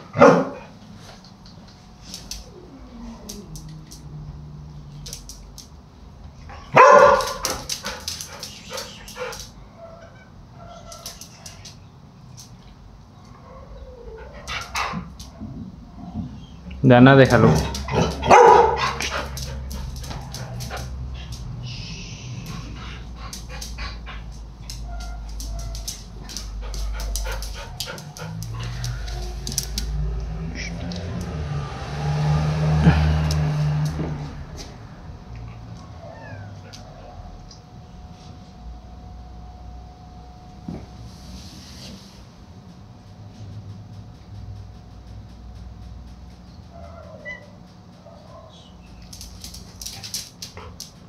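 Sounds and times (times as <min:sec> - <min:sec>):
dog barking: 0:00.1 - 0:00.7, 0:06.7 - 0:10.1, 0:17.4 - 0:20.6, 0:24.8 - 0:29.3
dog whimpering: 0:02.4 - 0:03.7, 0:07.9 - 0:11.6, 0:13.4 - 0:15.1, 0:35.6 - 0:37.3, 0:46.8 - 0:47.6
faint whines: 0:17.6 - 0:31.3.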